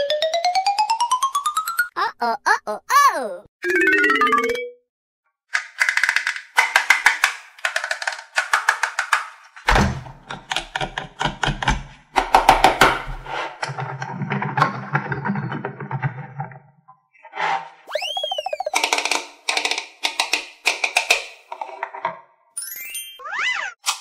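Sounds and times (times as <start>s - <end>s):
plastic toy clicking and rattling: 5.5s - 12.7s, 18.7s - 22.0s.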